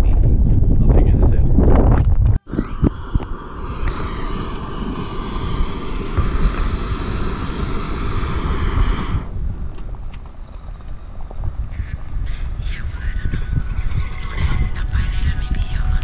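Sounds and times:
wind buffeting microphone: 0.0 - 16.0
high whistling tones: 2.4 - 9.5.

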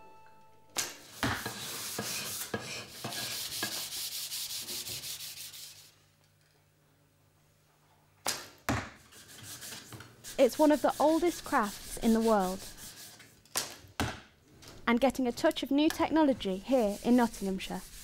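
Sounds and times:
sanding wood by hand: 1.0 - 5.9, 9.1 - 13.2, 16.2 - 18.0.

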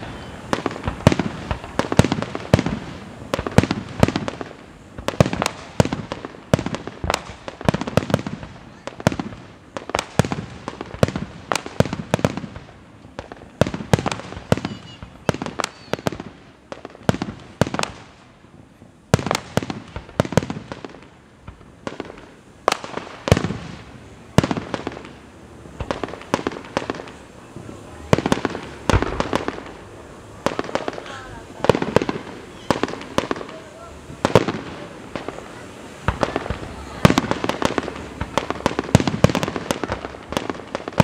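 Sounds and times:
fireworks bursting: 0.0 - 41.0.

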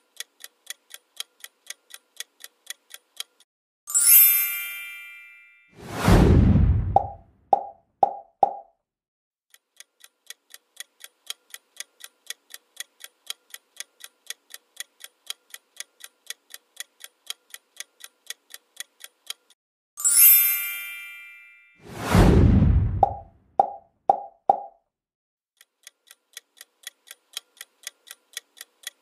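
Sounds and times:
clock ticking: 0.0 - 3.5, 9.5 - 19.6, 25.6 - 29.0
bright chime: 3.9 - 5.7, 20.0 - 21.9.

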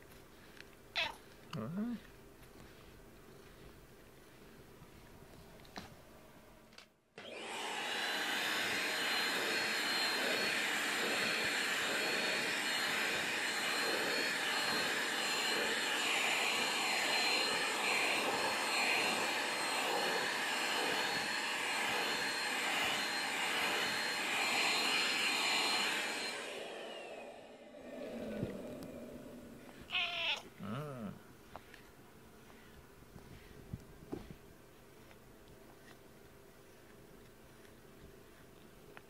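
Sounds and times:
motor winding down: 7.2 - 29.9
vacuum cleaner whining: 7.2 - 30.0.

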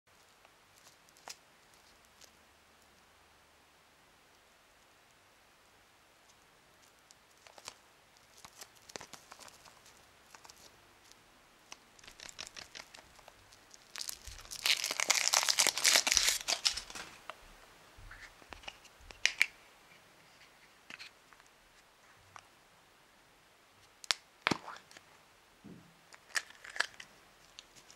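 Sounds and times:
foil wrapper crinkling: 7.4 - 10.7, 11.9 - 17.2, 26.1 - 27.9
chocolate shell cracking: 11.7 - 17.1, 19.1 - 19.6, 26.1 - 27.9.

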